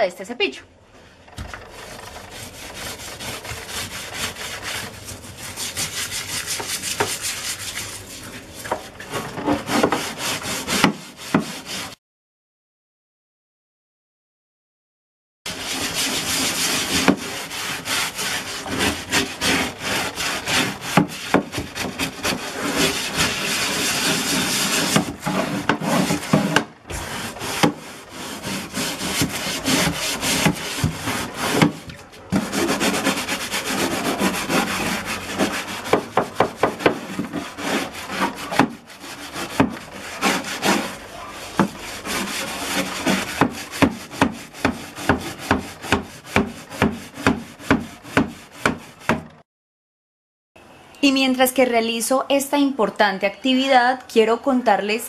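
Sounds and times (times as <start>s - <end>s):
scrub brush scraping concrete: 1.7s - 12.0s, 15.5s - 49.2s.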